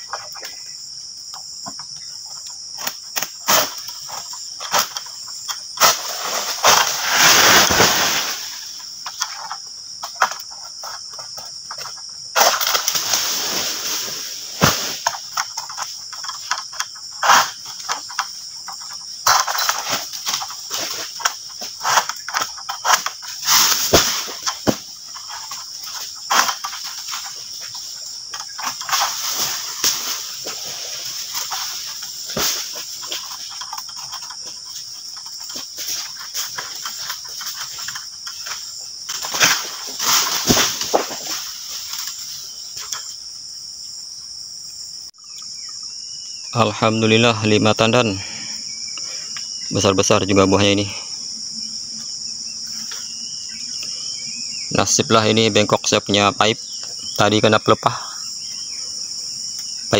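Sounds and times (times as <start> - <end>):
insect chorus droning: 0.0 - 59.9
blade cracking into palm fronds: 2.8 - 5.1, 5.8 - 8.8, 12.4 - 18.2, 19.2 - 34.1, 35.4 - 42.2
cut fronds crashing down: 5.8 - 8.8, 12.4 - 15.4, 19.2 - 27.7, 28.6 - 33.2, 35.4 - 42.2.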